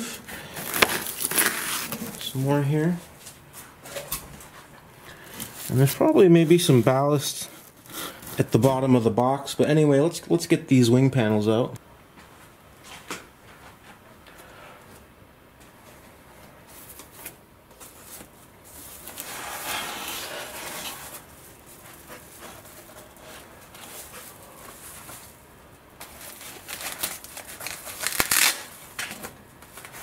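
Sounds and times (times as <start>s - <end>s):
foam and foil bags rustling: 0.0s - 3.0s, 3.8s - 8.7s, 16.6s - 30.0s.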